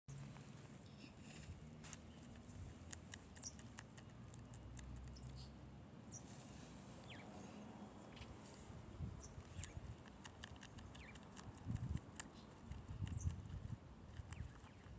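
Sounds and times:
guinea pig chewing: 1.9 - 5.3, 9.3 - 14.9.

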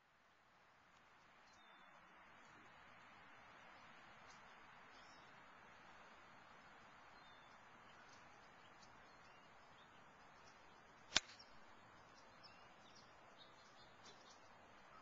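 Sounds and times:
faint bird chirps: 1.4 - 2.1, 4.2 - 5.4, 7.0 - 15.0
golf club striking ball: 11.1 - 11.5.

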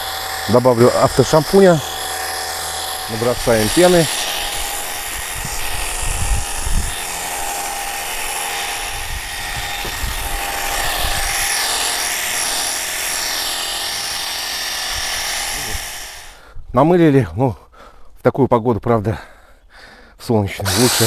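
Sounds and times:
pressure washer motor whine: 0.0 - 16.4, 20.7 - 21.0.

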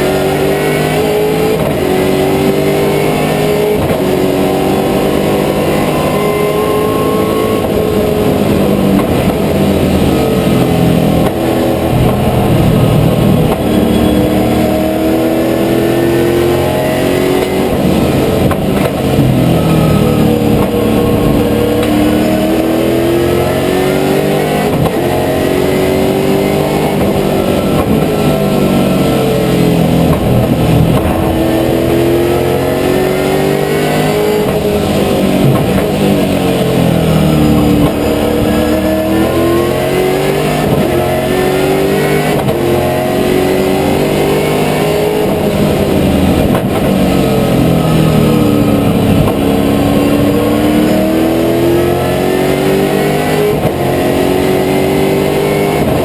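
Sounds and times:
racing car engine shifting gears: 0.0 - 56.0.

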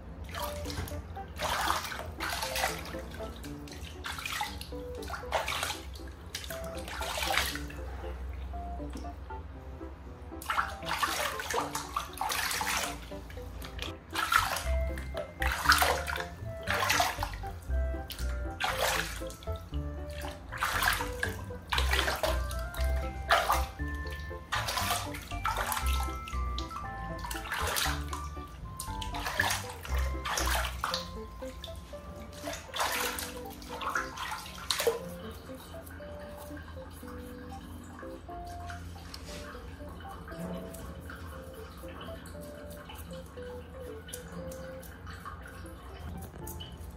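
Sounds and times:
water splashing in a plastic basin: 0.0 - 9.1, 10.4 - 46.9
light background music: 0.0 - 46.9
hands rubbing wet feathers: 10.8 - 31.2, 40.7 - 45.5.

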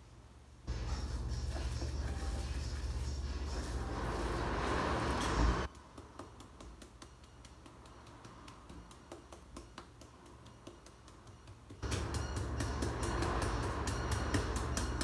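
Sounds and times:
loud steady hum: 0.6 - 5.7, 11.8 - 15.0
mallet tapping fish: 5.8 - 15.0.

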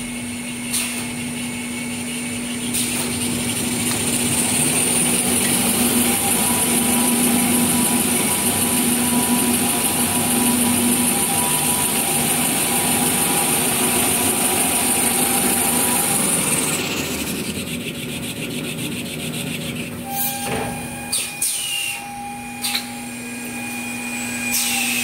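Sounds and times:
paper rewinding machine running: 0.4 - 20.1.

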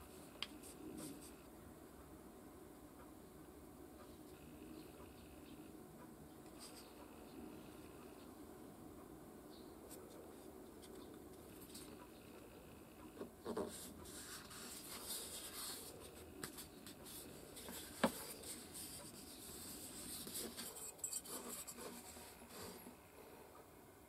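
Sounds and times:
faint scratching and rustling paper: 0.0 - 1.5, 6.4 - 8.3, 9.9 - 23.0.

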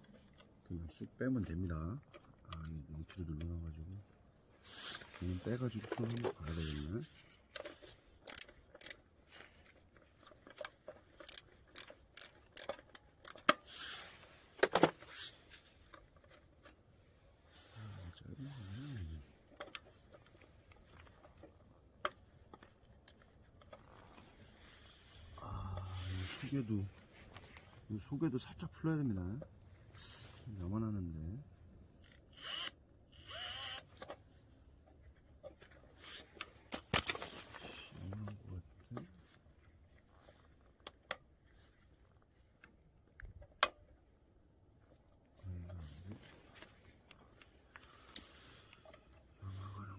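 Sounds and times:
metal parts clicking and rattling: 7.5 - 9.0, 10.0 - 13.6
electric ratchet whirring: 8.2 - 9.0, 11.2 - 13.4, 32.1 - 33.9.

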